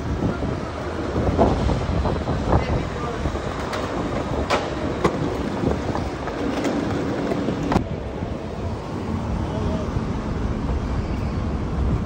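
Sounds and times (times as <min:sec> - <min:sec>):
vehicle rolling over pavement: 0:00.0 - 0:08.6
wind on microphone: 0:00.0 - 0:12.0
knocks from road bumps: 0:03.7 - 0:05.4.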